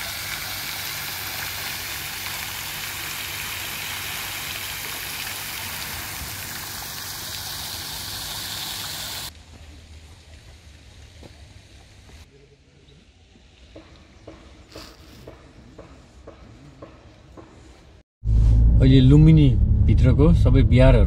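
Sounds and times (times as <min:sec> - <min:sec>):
fountain water splashing: 0:00.0 - 0:12.2.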